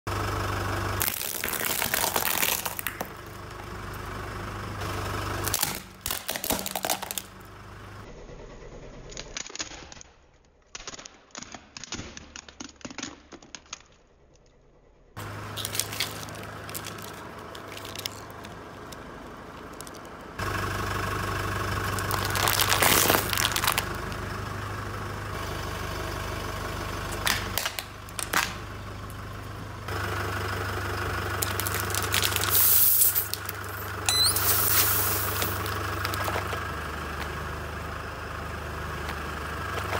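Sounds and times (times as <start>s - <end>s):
car engine idling: 0.1s - 9.0s, 14.2s - 39.9s
plastic pieces crunching: 1.0s - 3.3s, 5.4s - 7.3s, 9.3s - 14.4s, 15.2s - 20.2s, 21.8s - 24.2s, 27.2s - 28.6s, 31.4s - 36.6s
glass baubles shattering: 15.5s - 18.5s, 22.0s - 23.8s.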